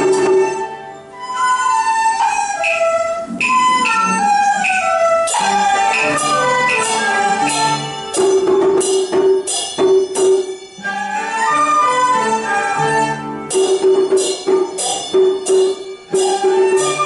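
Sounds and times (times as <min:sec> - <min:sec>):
flutes: 0:00.0 - 0:08.4, 0:10.8 - 0:13.6, 0:16.1 - 0:17.0
hammered dulcimer: 0:00.0 - 0:17.0
plucked lute notes: 0:00.0 - 0:17.0
struck percussion beat: 0:02.6 - 0:10.6, 0:13.5 - 0:17.0.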